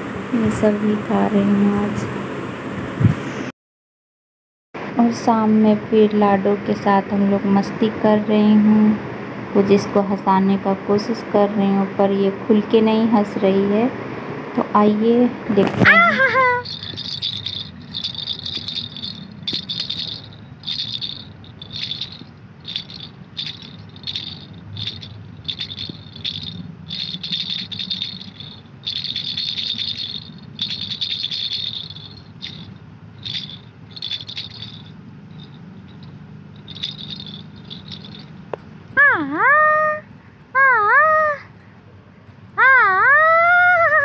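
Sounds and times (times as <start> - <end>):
plastic baby rattle shaken: 15.6 - 38.4.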